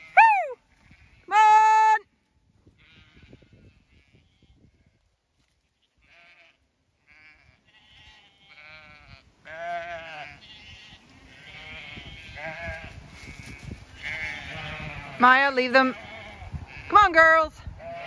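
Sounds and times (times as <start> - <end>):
sheep bleating: 5.8 - 17.1, 17.8 - 18.0.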